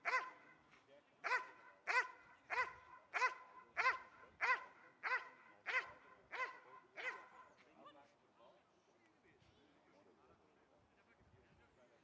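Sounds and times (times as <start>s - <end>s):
dog barking rhythmically: 0.0s - 0.4s, 1.2s - 7.3s.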